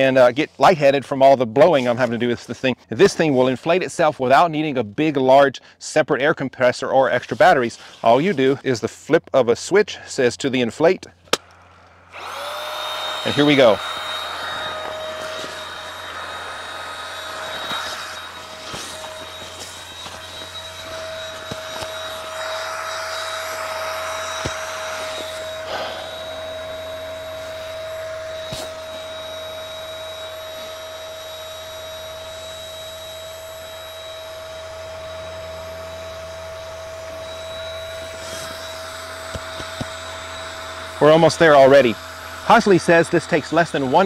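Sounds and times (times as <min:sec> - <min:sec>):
electric air pump whining: 0:11.3 - 0:44.0.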